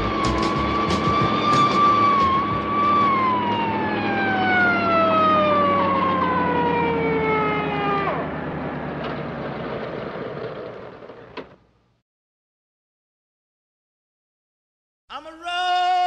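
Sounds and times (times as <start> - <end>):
siren winding down: 0.0 - 10.8.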